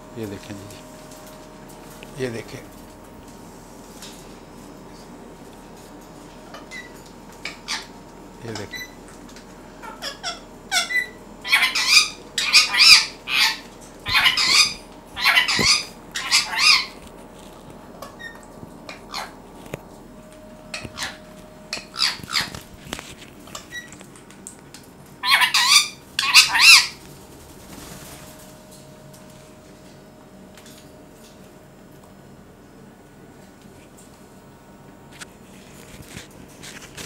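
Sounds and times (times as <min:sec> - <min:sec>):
parakeet squawking: 0:07.5 - 0:07.9, 0:09.8 - 0:17.0, 0:18.2 - 0:19.4, 0:20.7 - 0:22.6, 0:25.2 - 0:27.0
parakeet chirps: 0:09.9 - 0:17.0, 0:20.7 - 0:22.6, 0:25.2 - 0:27.0.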